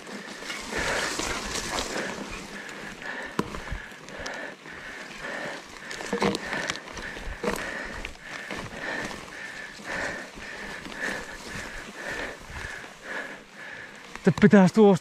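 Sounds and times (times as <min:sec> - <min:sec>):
bike rustling over forest ground: 0:00.0 - 0:15.0
bike knocks and rattles: 0:05.8 - 0:09.3.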